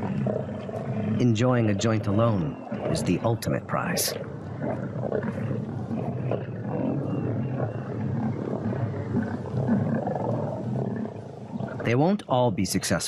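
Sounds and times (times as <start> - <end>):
lions growling and snarling: 0.0 - 12.0.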